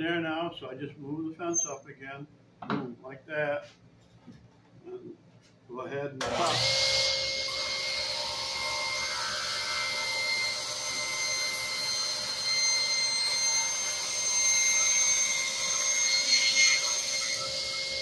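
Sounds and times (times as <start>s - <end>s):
table saw cutting wood: 6.2s - 18.0s.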